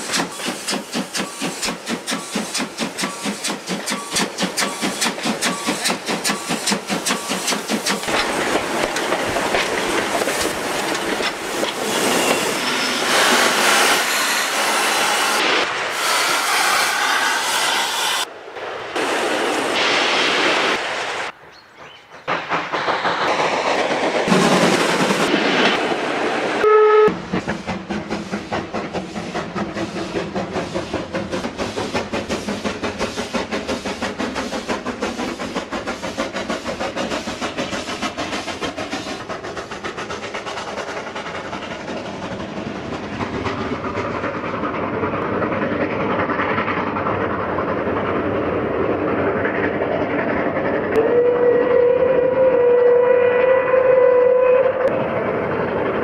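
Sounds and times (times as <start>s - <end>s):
steam locomotive exhaust chuffing: 0.0s - 18.3s, 22.2s - 26.3s, 27.1s - 56.0s
steam whistle: 26.6s - 27.2s, 50.9s - 54.9s.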